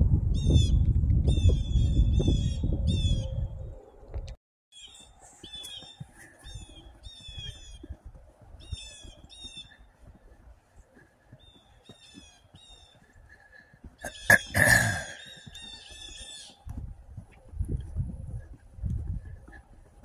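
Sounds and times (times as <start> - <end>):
footsteps crunching in snow: 4.7 - 20.0
bird calling: 4.8 - 7.9, 8.6 - 10.0, 10.9 - 16.7.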